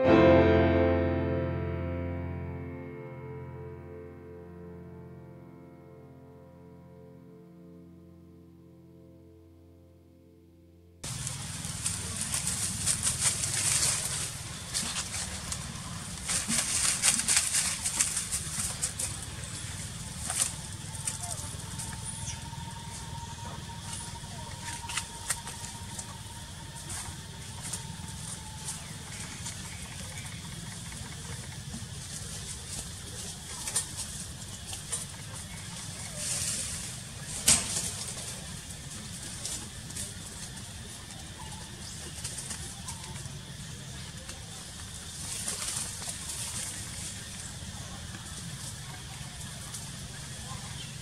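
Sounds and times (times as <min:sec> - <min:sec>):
faint steady whine: 0:00.0 - 0:51.0
leaves and twigs rustling: 0:11.0 - 0:51.0
faint bird calls: 0:18.0 - 0:38.5.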